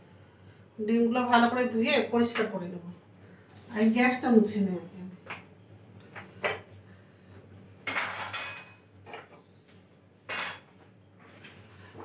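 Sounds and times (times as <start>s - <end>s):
pots and utensils clinking: 7.5s - 9.4s, 10.3s - 10.8s.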